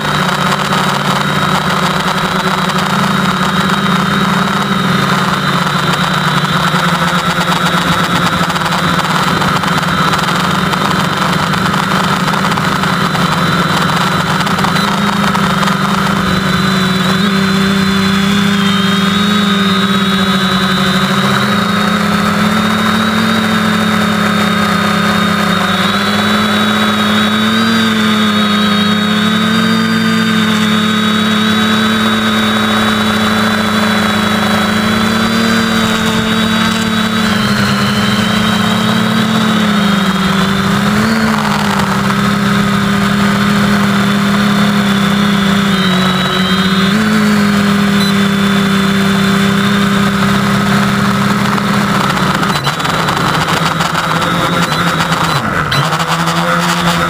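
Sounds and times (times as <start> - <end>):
quadcopter motors humming: 0.0 - 57.0.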